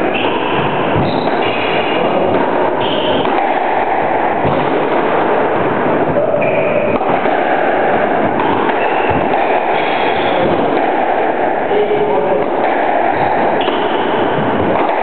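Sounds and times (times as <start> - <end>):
racket striking ball: 0.0 - 15.0.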